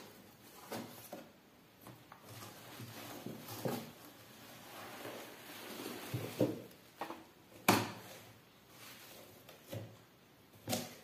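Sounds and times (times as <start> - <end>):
bubble wrap rustling: 2.2 - 7.0.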